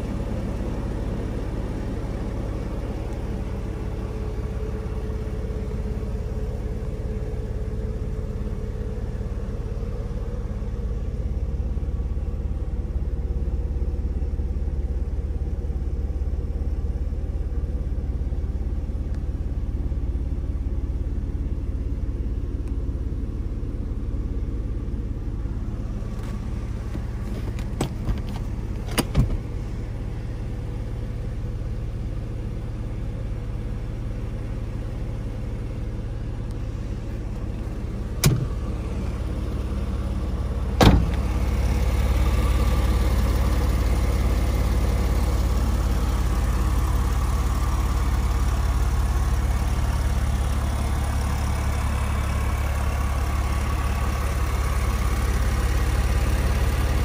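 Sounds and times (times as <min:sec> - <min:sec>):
car engine idling: 0:00.0 - 0:57.0
sharp clicks and knocks: 0:26.2 - 0:29.4, 0:38.2 - 0:38.5.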